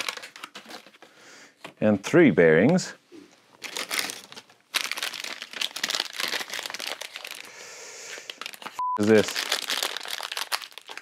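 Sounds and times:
plastic packaging crinkling: 0.0 - 1.0, 3.5 - 11.0.

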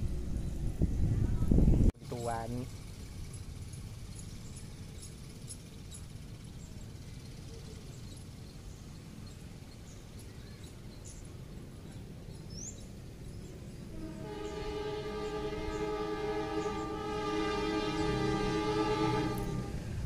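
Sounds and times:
small birds chirping: 2.2 - 14.6.

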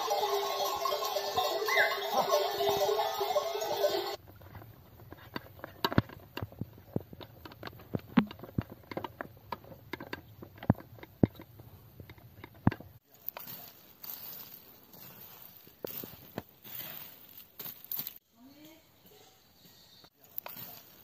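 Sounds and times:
music: 0.0 - 4.2.

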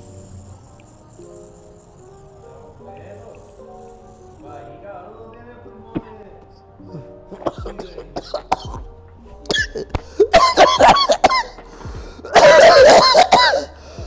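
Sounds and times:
man coughing hard: 7.3 - 8.9, 9.5 - 11.6, 12.2 - 13.8.

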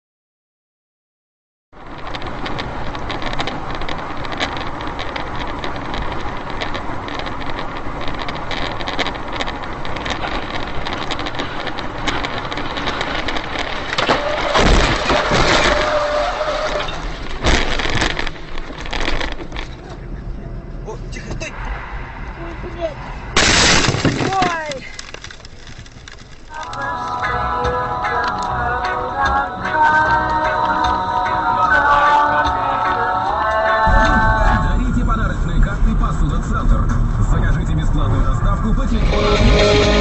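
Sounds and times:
loud crashing and cracking: 1.8 - 19.8, 23.3 - 26.9
wind and road noise in car: 1.8 - 40.0
sharp impacts: 21.4 - 26.6.

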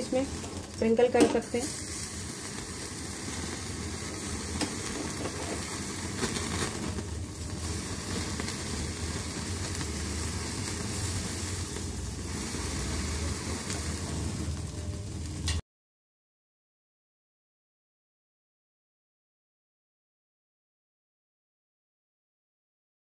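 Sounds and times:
gas burner flame: 0.0 - 15.6
meat sizzling over flame: 0.0 - 15.6.

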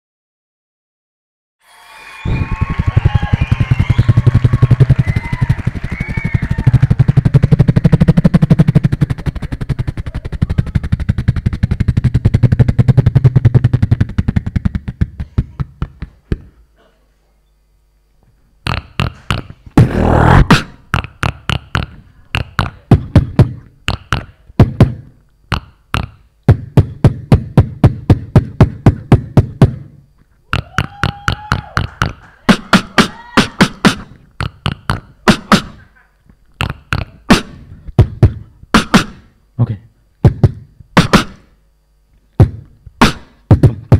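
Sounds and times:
beatboxing into a microphone: 2.2 - 16.6, 18.6 - 41.6, 42.3 - 43.9
hummed tone: 18.7 - 24.4.

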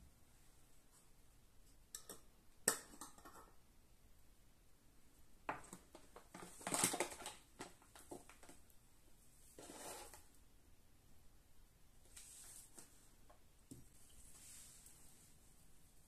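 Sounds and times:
paper bag crinkling: 5.9 - 8.5.

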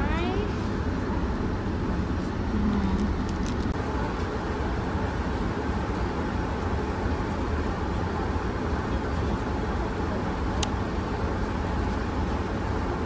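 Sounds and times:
airliner cabin drone: 0.0 - 13.0
light click: 10.6 - 10.8.

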